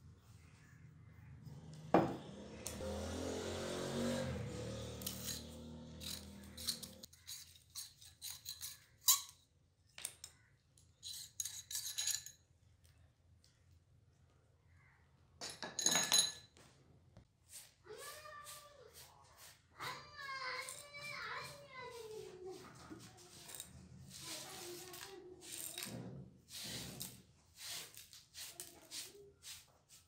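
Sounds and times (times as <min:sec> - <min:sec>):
metal part clinking and scraping: 0:05.0 - 0:09.4, 0:11.0 - 0:12.4
brush sweeping scrape: 0:17.4 - 0:30.0.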